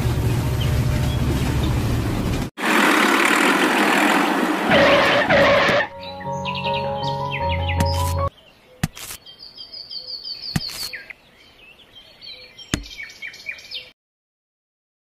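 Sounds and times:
birds chirping: 4.7 - 13.9
held musical tones: 5.4 - 8.3.

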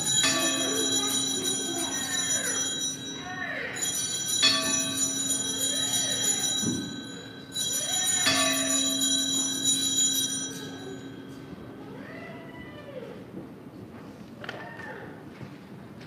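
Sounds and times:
altar bell ringing: 0.0 - 12.0.

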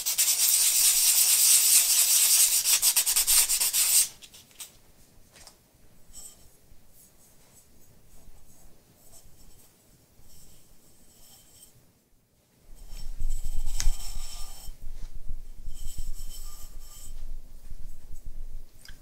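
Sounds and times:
sandpaper rubbing on clay: 0.0 - 4.2.

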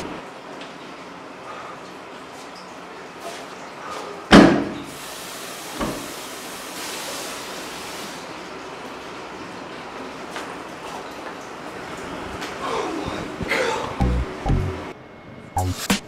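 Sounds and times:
water running from tap: 4.9 - 12.1.

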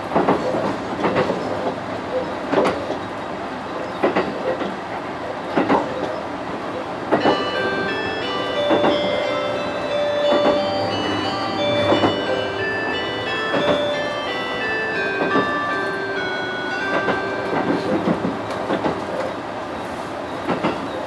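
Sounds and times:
train running: 0.0 - 21.0
wheels clacking over rail joints: 7.1 - 19.5, 20.4 - 21.0
chime melody: 7.2 - 19.2.

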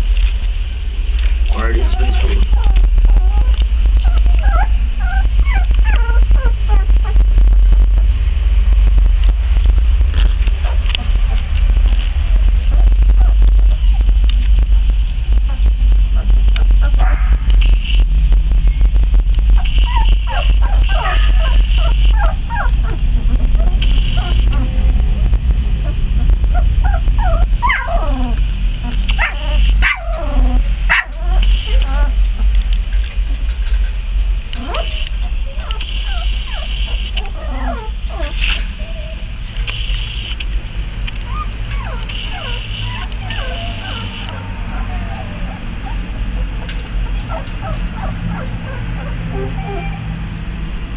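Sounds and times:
steady low rumble: 0.0 - 50.9
puppies whimpering and squeaking: 1.0 - 7.7, 9.3 - 18.0, 18.6 - 40.4, 41.1 - 50.9
puppy yelps: 1.6 - 7.4, 10.6 - 14.2, 15.4 - 17.8, 19.6 - 24.9, 25.8 - 32.2, 34.5 - 39.3, 41.2 - 50.9.

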